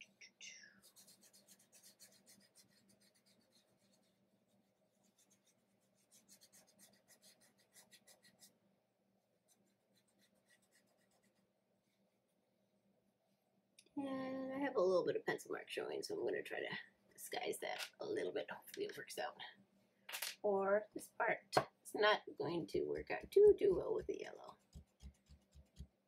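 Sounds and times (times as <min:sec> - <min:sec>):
fingertips rubbing pastel on paper: 0:00.8 - 0:08.6, 0:09.4 - 0:12.0, 0:24.5 - 0:26.0.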